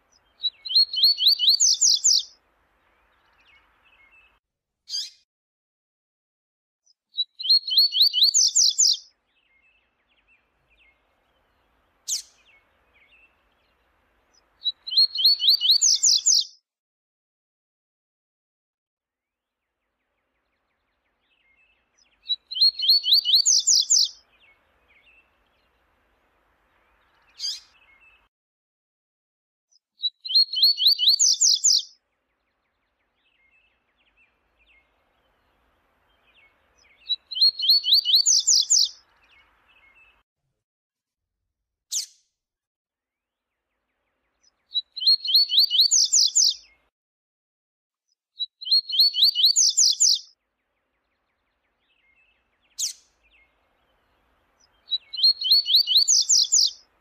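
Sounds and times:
bird singing rapid high notes: 0:00.3 - 0:02.3, 0:14.6 - 0:16.5, 0:21.3 - 0:25.3, 0:36.1 - 0:40.2, 0:44.7 - 0:46.8, 0:48.6 - 0:50.3, 0:51.1 - 0:56.8.

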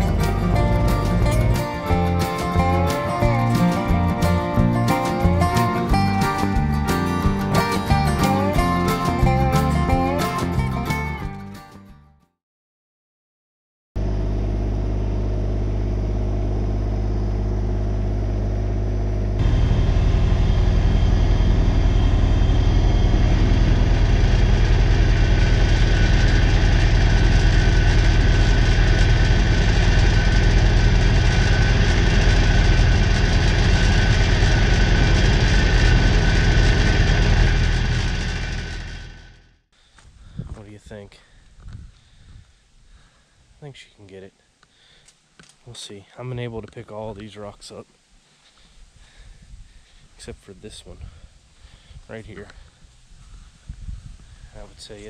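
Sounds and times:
tractor diesel engine running: 0:00.0 - 0:11.3, 0:14.0 - 0:41.0.

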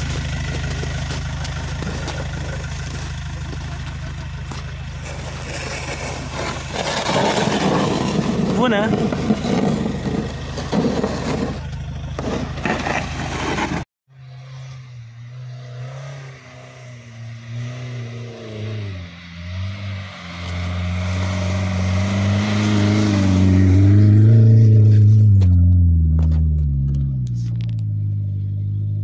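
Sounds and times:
loud rough noise: 0:00.0 - 0:13.8
car engine approaching: 0:00.0 - 0:29.0.

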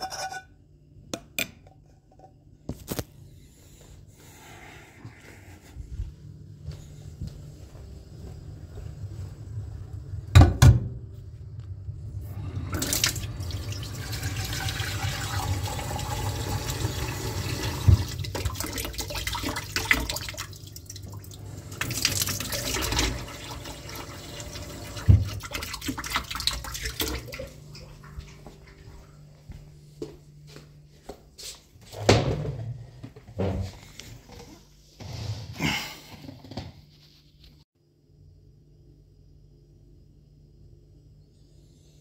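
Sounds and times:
tap water running into saucepan: 0:12.7 - 0:27.5.

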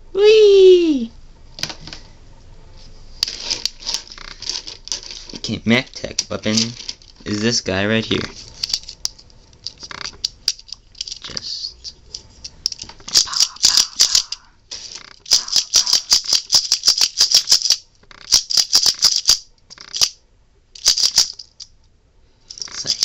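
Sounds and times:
plastic toy clicking: 0:12.7 - 0:14.5, 0:15.2 - 0:20.2, 0:20.8 - 0:21.7.

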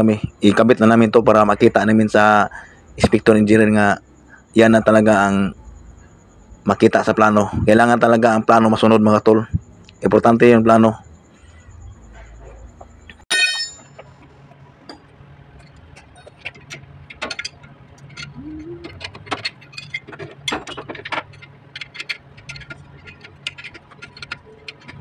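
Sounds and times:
metal wrench clank: 0:13.3 - 0:14.2, 0:15.6 - 0:25.0
metallic clicks and clinks: 0:14.9 - 0:25.0.

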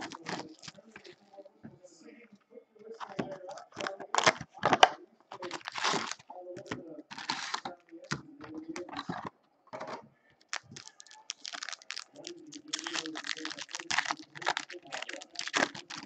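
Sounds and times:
foil wrappers crinkling: 0:00.0 - 0:01.2, 0:05.4 - 0:08.2, 0:10.4 - 0:16.0.

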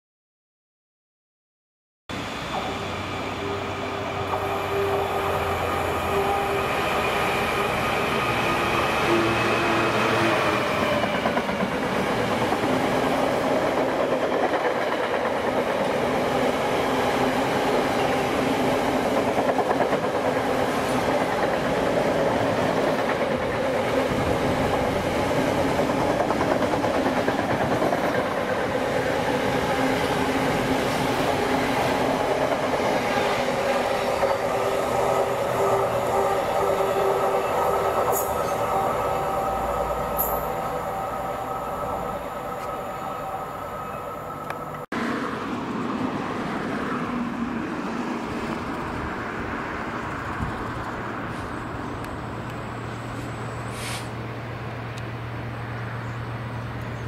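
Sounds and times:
locomotive engine drone: 0:02.1 - 0:10.0, 0:23.5 - 0:47.6.

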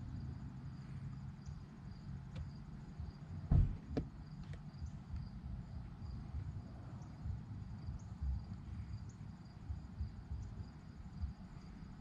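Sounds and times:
insects chirping: 0:00.0 - 0:12.0
low thump: 0:03.5 - 0:04.2.

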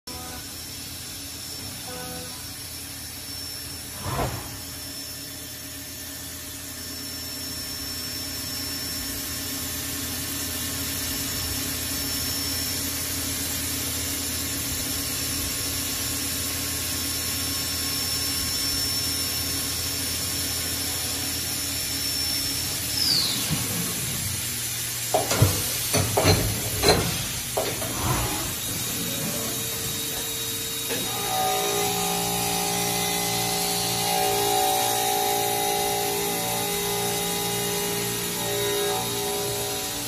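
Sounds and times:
milling machine spindle whine: 0:04.8 - 0:40.0
mill cutting metal: 0:12.3 - 0:40.0.

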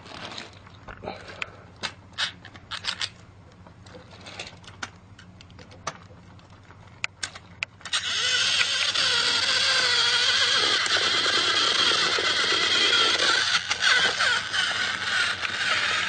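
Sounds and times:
plastic toy parts clicking: 0:02.2 - 0:03.1, 0:07.2 - 0:16.0
toy train motor whirring: 0:07.8 - 0:16.0.

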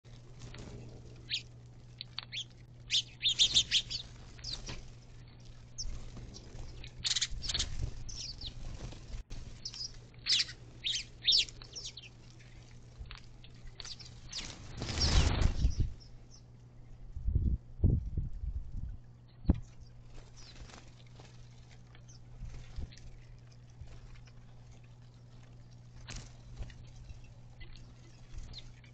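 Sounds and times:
sparrows chirping: 0:00.5 - 0:16.5, 0:19.3 - 0:20.8, 0:21.9 - 0:23.4, 0:26.0 - 0:28.9
rush of bird wings: 0:05.7 - 0:09.6, 0:14.0 - 0:16.1.

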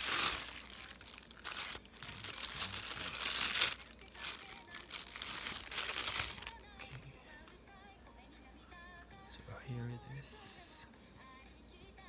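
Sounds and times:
bubble wrap crinkling: 0:00.0 - 0:07.0.

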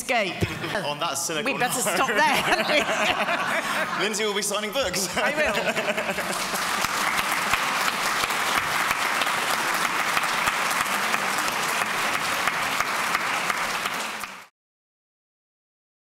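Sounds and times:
audience applauding: 0:01.8 - 0:14.5.

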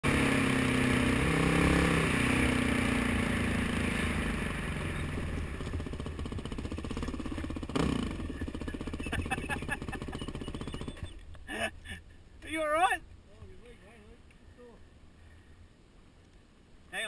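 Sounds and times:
dirt bike engine revving: 0:00.0 - 0:11.2
wind and trail noise: 0:00.0 - 0:17.0.

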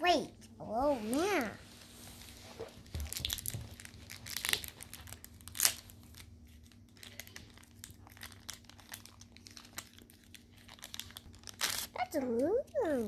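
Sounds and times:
packaging crinkling and rustling: 0:01.8 - 0:13.0.

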